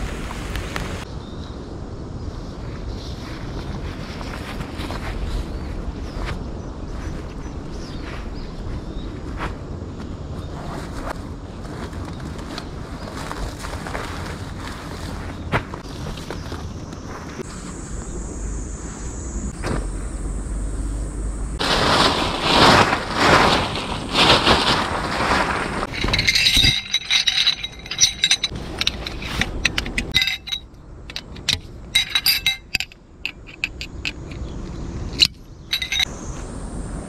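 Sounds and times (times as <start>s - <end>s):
rustling: 10.4s - 17.6s, 21.6s - 34.5s, 35.2s - 36.1s
light metallic clinks and scrapes: 25.8s - 36.1s.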